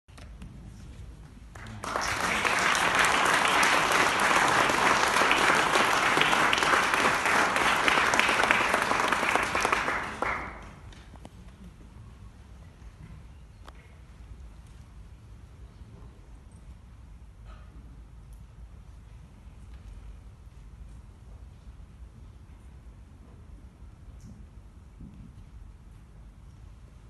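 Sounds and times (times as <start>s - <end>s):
audience applauding: 1.5s - 11.0s.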